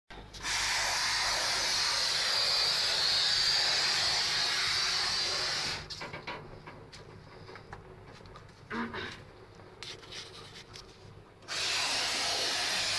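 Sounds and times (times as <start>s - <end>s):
spray foam gun hissing: 0.4s - 5.8s, 11.5s - 12.9s.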